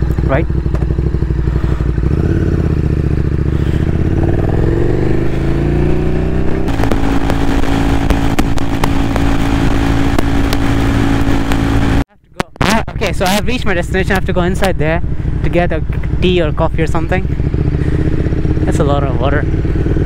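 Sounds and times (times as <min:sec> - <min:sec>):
motorcycle engine accelerating: 0:00.0 - 0:20.0
wind noise: 0:03.8 - 0:13.5.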